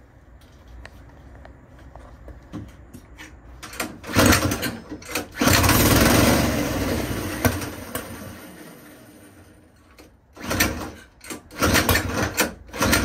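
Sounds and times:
pull starter cord: 0:03.6 - 0:08.4, 0:09.8 - 0:13.0
small engine sputtering and running: 0:04.1 - 0:09.5.

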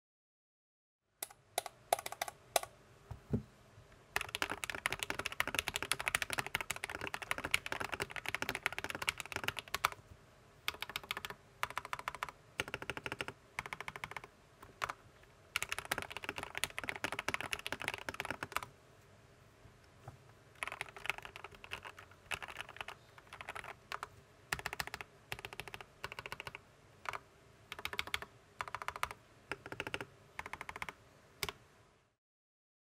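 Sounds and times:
mechanical keyboard typing: 0:01.2 - 0:02.7, 0:04.2 - 0:10.0, 0:10.7 - 0:15.0, 0:15.6 - 0:18.7, 0:20.6 - 0:31.6.

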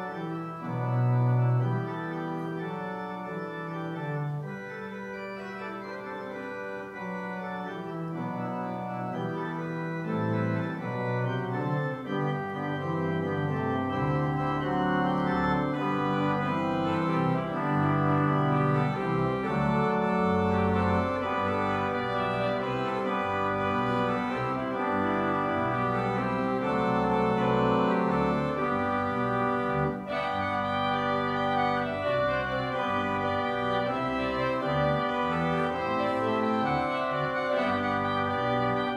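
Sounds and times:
organ playing held chords: 0:00.0 - 0:38.9.

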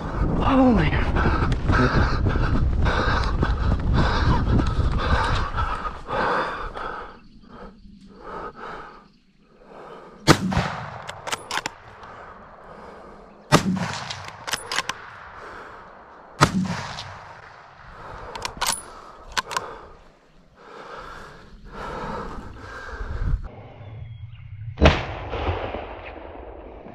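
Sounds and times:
rifle shots: 0:10.3 - 0:11.9, 0:13.5 - 0:15.5, 0:16.4 - 0:18.8
rifle action clicks: 0:10.5 - 0:12.1, 0:13.6 - 0:15.2, 0:18.2 - 0:19.8.

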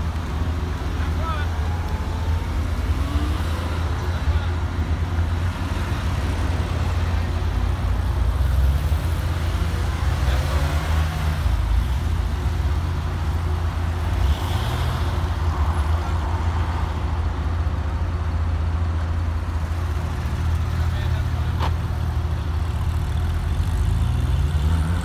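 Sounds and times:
car pulling away revving: 0:00.2 - 0:15.4, 0:22.6 - 0:25.0
sports car engines idling: 0:17.2 - 0:23.9.

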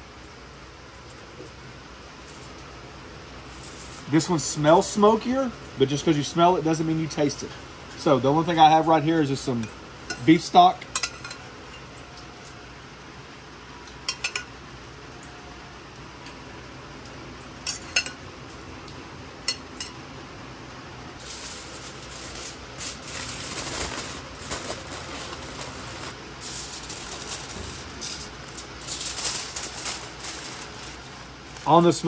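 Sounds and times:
aluminium foil crinkling: 0:02.2 - 0:02.7, 0:03.4 - 0:04.3, 0:21.2 - 0:32.0.

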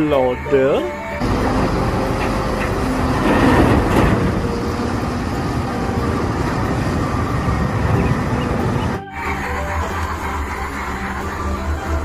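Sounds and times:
diesel engine under load: 0:00.0 - 0:12.0.

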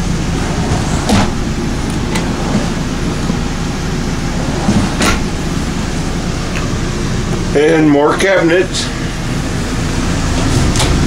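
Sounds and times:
air conditioner rumbling: 0:00.0 - 0:11.0
wooden drawers knocking shut: 0:00.6 - 0:03.5.

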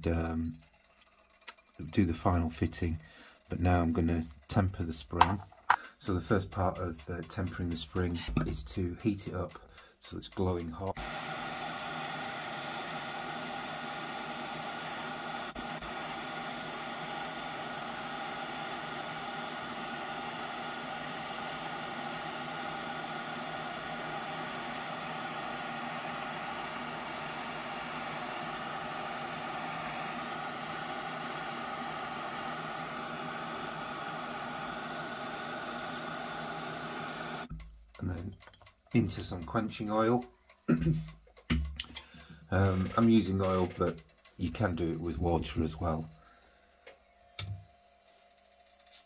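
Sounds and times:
gas torch flame hissing: 0:10.9 - 0:37.5.

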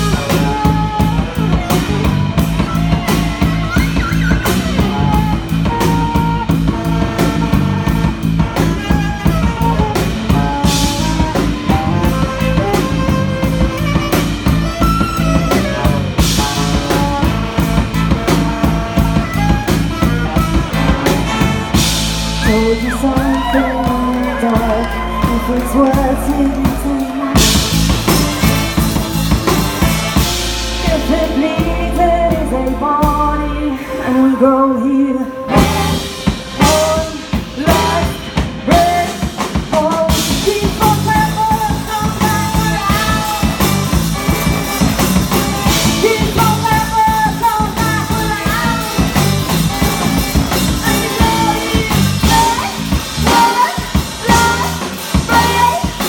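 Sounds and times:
big band playing: 0:00.0 - 0:56.0
woman singing: 0:22.4 - 0:27.7, 0:30.8 - 0:44.4, 0:45.6 - 0:56.0.

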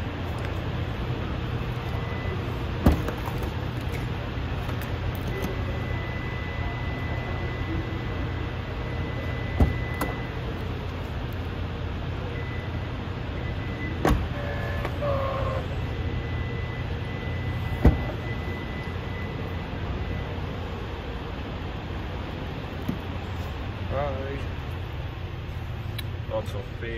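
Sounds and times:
steady low hum: 0:00.0 - 0:26.9.

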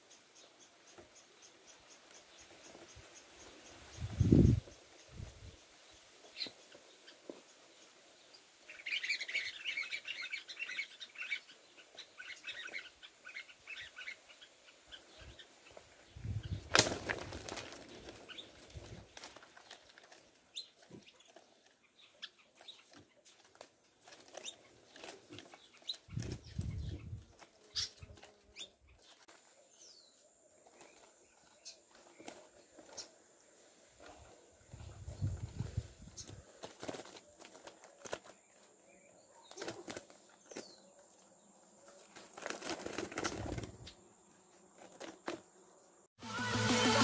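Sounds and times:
small ticks and rustles: 0:00.0 - 0:13.2, 0:14.7 - 0:45.8
small birds chirping: 0:00.0 - 0:46.1
wings flapping: 0:16.4 - 0:20.3, 0:22.8 - 0:28.4, 0:31.9 - 0:33.1, 0:35.0 - 0:38.4, 0:39.5 - 0:40.7, 0:42.0 - 0:43.9, 0:44.8 - 0:45.4.

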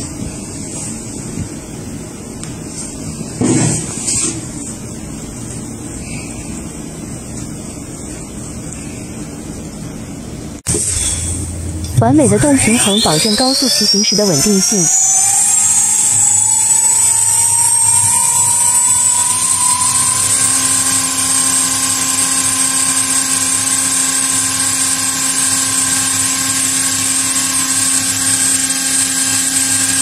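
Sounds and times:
electric motor whine: 0:10.7 - 0:30.0.

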